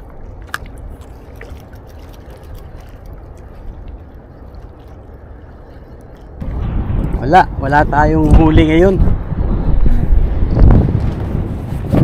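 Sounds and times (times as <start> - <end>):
water lapping against rocks: 0.0 - 6.5
wind buffeting microphone: 0.0 - 12.0.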